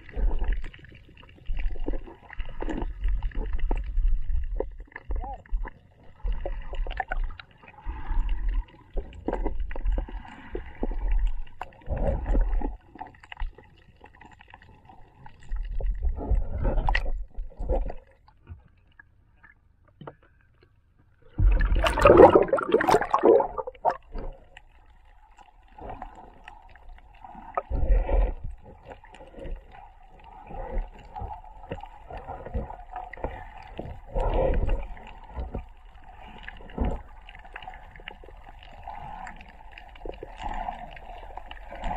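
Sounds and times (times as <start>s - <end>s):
muffled underwater thuds and sloshing: 0.0s - 14.6s, 15.3s - 18.8s, 21.2s - 41.9s
water splashing rush: 21.4s - 24.3s.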